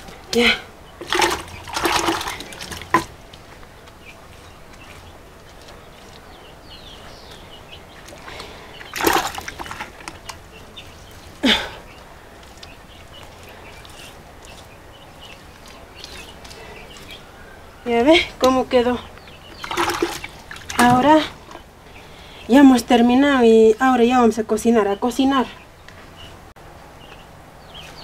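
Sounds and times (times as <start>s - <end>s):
wet splashes: 1.0s - 3.2s, 7.8s - 17.2s, 19.4s - 21.7s
hands smearing wet mud: 1.0s - 17.3s.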